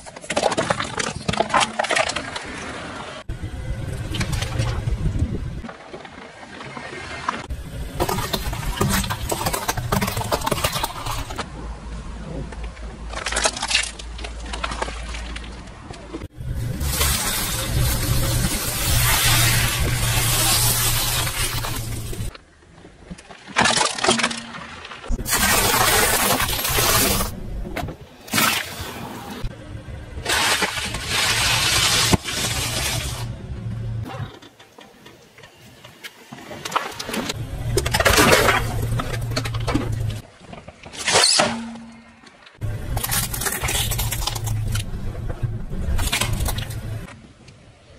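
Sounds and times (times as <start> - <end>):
plastic toys cracking under tyre: 0.0 - 2.7, 8.0 - 11.5, 12.8 - 16.0, 23.1 - 27.4, 36.6 - 44.9, 45.7 - 47.2
low car rumble: 3.2 - 5.7, 14.0 - 22.3, 29.3 - 34.3, 37.3 - 40.2, 42.6 - 47.2
tyre crunching objects: 7.8 - 11.5, 16.0 - 22.4, 25.1 - 29.2, 37.0 - 42.0, 42.6 - 47.1
plastic tub bursting under tyre: 8.0 - 11.4.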